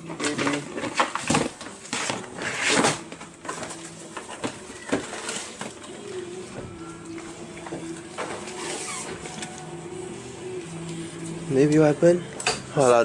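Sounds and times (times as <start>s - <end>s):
plastic cone rustling and scraping: 0.1s - 6.1s, 8.3s - 9.6s.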